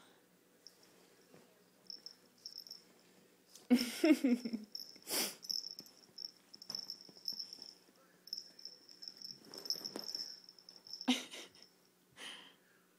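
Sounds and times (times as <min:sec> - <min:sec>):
animals scuffling on a couch: 0:09.3 - 0:10.2.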